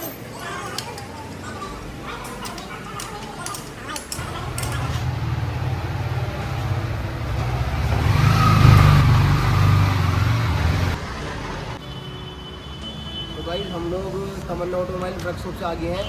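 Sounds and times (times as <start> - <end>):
vehicle engine running: 4.2 - 11.8.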